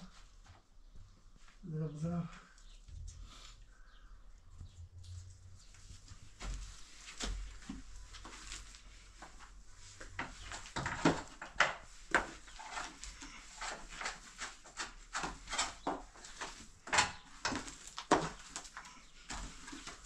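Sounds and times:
wooden scraper scraping earth and stones: 0:12.1 - 0:20.0.

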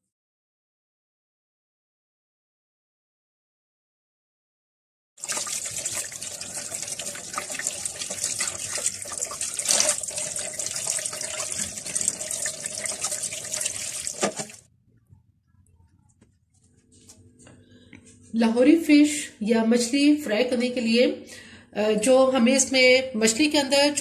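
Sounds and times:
water running from a tap: 0:05.2 - 0:14.6.

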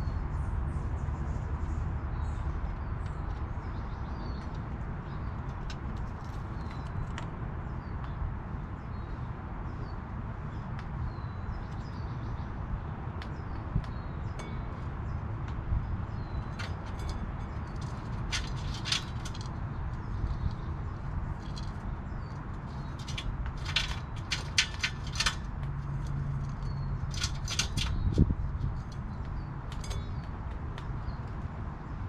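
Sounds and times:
squirrel crunching seeds: 0:17.7 - 0:19.5, 0:22.5 - 0:28.1.

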